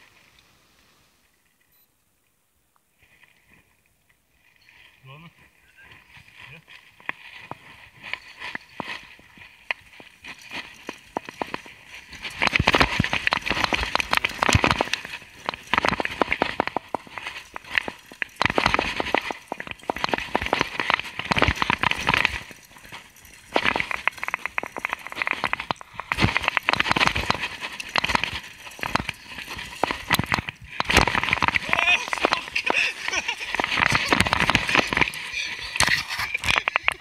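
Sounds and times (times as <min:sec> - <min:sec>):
tyres running over dirt: 0:04.8 - 0:37.0
bike rattling: 0:06.2 - 0:37.0.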